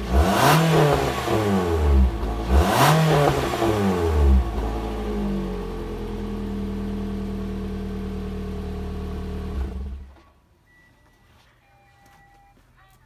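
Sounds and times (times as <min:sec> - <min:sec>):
car engine revving: 0:00.0 - 0:10.0
car engine idling: 0:01.1 - 0:10.0.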